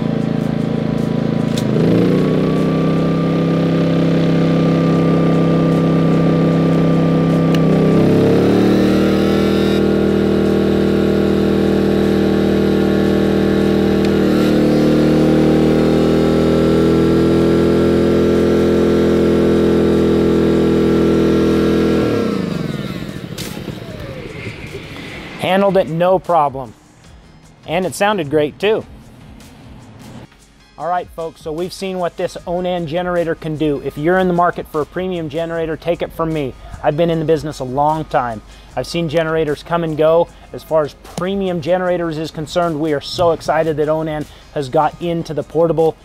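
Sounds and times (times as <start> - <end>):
generator engine running: 0.0 - 30.3, 31.2 - 46.0
heat gun blowing: 4.8 - 25.8.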